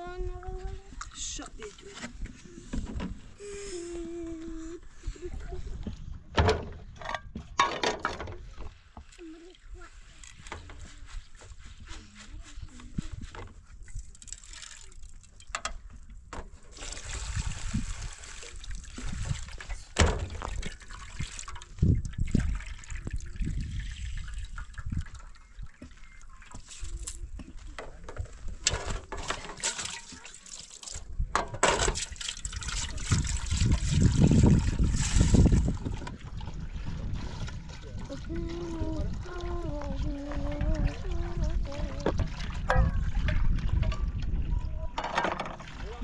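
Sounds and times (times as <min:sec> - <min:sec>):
water poured into metal pot: 0:13.8 - 0:15.6, 0:16.7 - 0:27.2, 0:29.2 - 0:31.1, 0:31.8 - 0:44.4
water splashing in metal bowls: 0:13.8 - 0:16.1, 0:16.7 - 0:27.7, 0:28.9 - 0:46.0.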